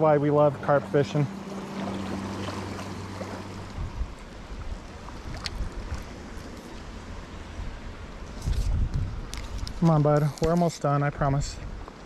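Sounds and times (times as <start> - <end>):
creek water splashing around legs: 0.4 - 10.7
wind rumble on microphone: 1.8 - 10.5.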